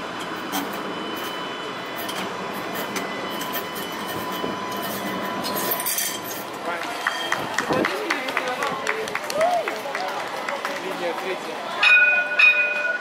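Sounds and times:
high whine: 0:00.0 - 0:07.7
tram passing on rails: 0:00.0 - 0:13.0.

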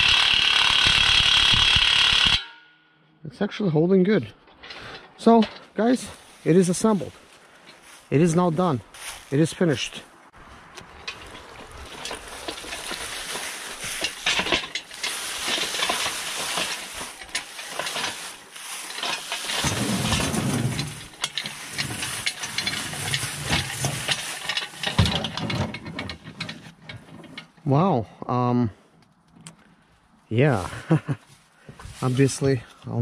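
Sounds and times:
dry leaves crunching and rustling: 0:06.1 - 0:24.9.

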